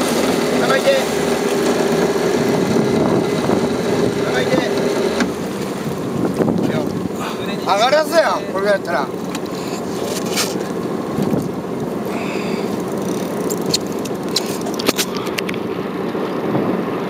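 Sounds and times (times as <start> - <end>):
boat engine running: 0.0 - 17.0.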